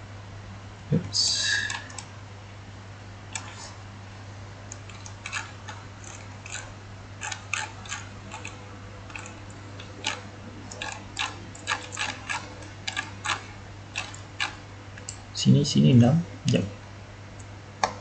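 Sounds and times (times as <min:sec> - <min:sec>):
low electrical hum: 0:00.0 - 0:18.0
computer mouse clicking: 0:03.3 - 0:03.6, 0:04.7 - 0:13.4, 0:14.0 - 0:15.2.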